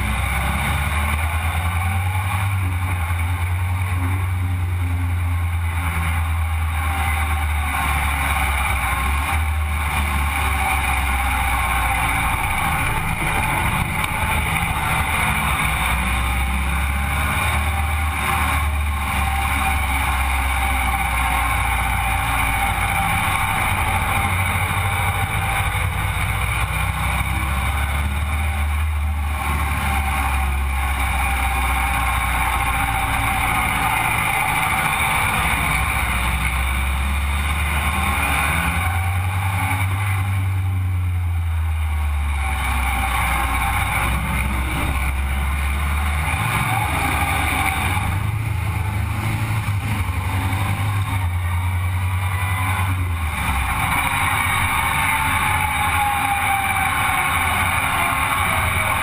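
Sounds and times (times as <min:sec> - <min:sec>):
buggy engine revving: 0:00.0 - 0:59.0
road and wind noise: 0:00.0 - 0:59.0.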